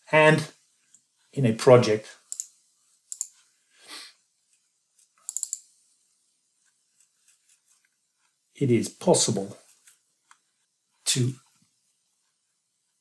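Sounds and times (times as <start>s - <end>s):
computer mouse clicks: 2.3s - 3.5s, 4.5s - 5.7s.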